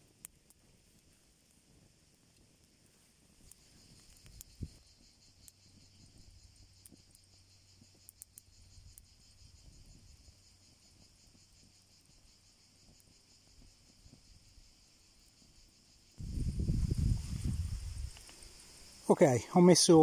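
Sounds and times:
high-pitched insect chorus: 3.0s - 20.0s
sharp ticks: 3.4s - 9.1s.

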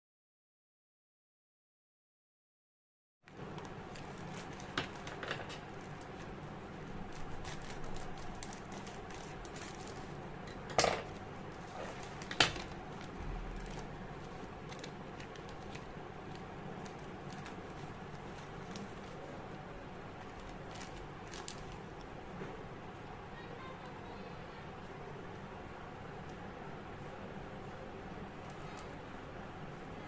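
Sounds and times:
plastic packaging rustling: 3.3s - 22.1s.

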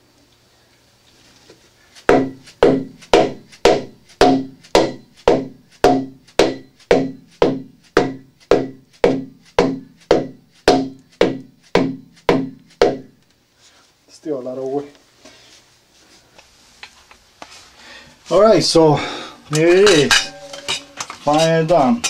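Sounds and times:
ringing hammer blows: 2.1s - 13.1s.

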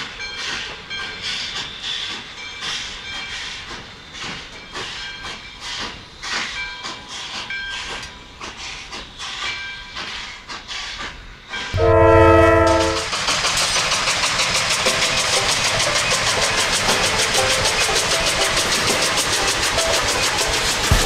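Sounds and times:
steam locomotive chuffing: 0.0s - 21.0s
steam locomotive whistle: 11.6s - 13.4s, 14.8s - 21.0s.

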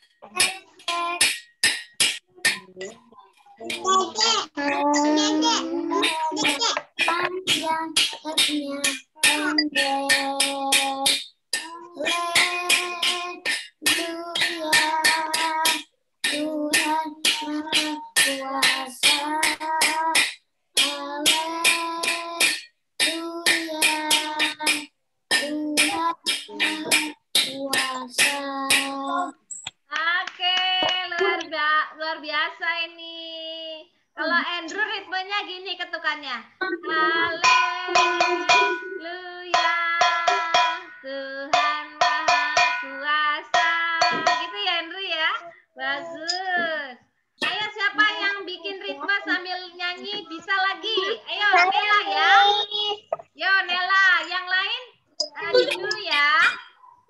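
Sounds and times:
person singing: 0.2s - 1.4s, 3.6s - 29.4s, 36.7s - 44.6s, 50.9s - 53.2s, 55.2s - 56.6s
hand drum strikes: 12.0s - 29.0s, 37.4s - 38.9s, 39.6s - 40.8s, 41.6s - 42.8s, 44.0s - 44.6s
metal taps on a pot lid: 37.4s - 38.8s, 41.6s - 42.8s, 44.0s - 44.5s.

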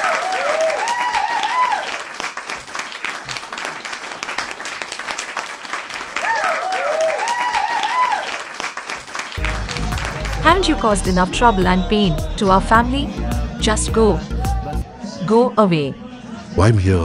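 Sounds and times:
whoops: 0.0s - 2.0s, 6.2s - 8.5s
crowd applauding and cheering: 0.0s - 13.5s.

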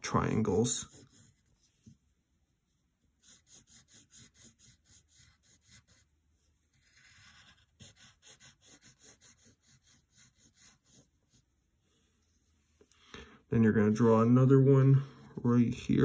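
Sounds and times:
pencil scratching on paper: 0.1s - 2.0s, 3.2s - 11.7s, 13.6s - 16.0s.

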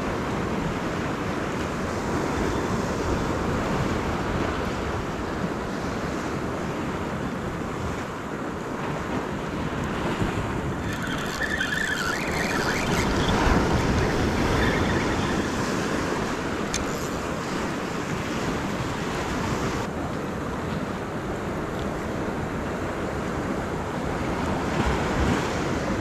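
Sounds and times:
ocean swell washing against rocks: 0.0s - 26.0s
wind buffeting microphone: 0.0s - 26.0s
wavering high-pitched squeal: 10.8s - 17.9s.

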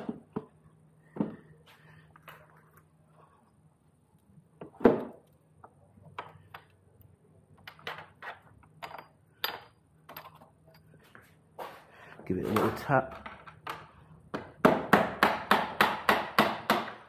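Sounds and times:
metal parts knocking and clinking: 7.5s - 11.0s.

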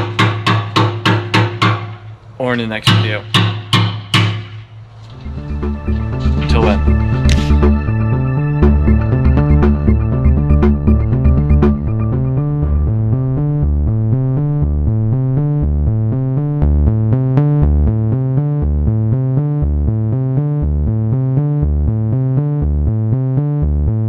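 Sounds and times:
electronic synthesizer music: 5.2s - 17.5s.

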